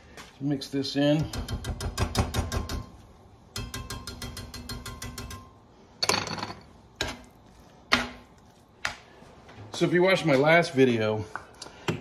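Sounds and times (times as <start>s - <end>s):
sharp metal knocks on pan: 1.2s - 2.9s, 3.6s - 5.5s
whisk clicking against a skillet: 3.6s - 5.5s.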